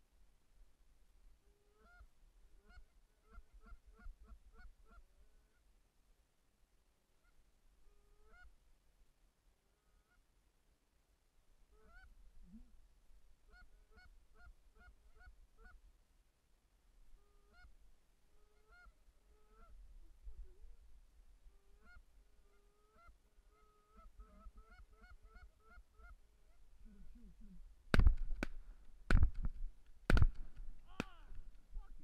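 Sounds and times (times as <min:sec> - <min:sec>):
geese honking: 0:18.4 - 0:19.8, 0:21.6 - 0:26.6.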